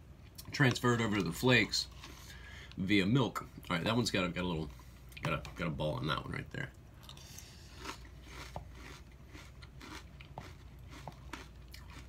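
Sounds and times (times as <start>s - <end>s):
chewing crunchy cereal: 7.0s - 12.0s.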